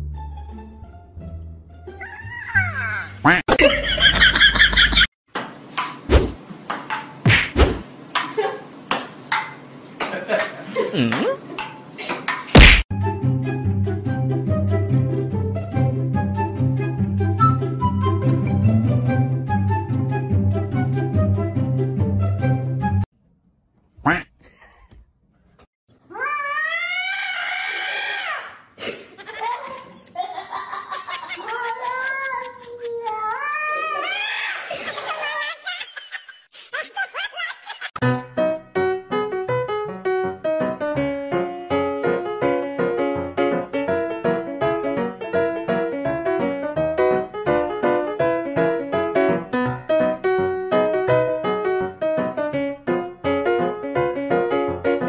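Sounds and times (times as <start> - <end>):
cat yowling: 2.0 - 3.2, 26.1 - 28.5
ping-pong ball bouncing on table: 5.3 - 6.0, 6.7 - 7.2, 8.2 - 12.4
sharp knock: 12.6 - 12.8.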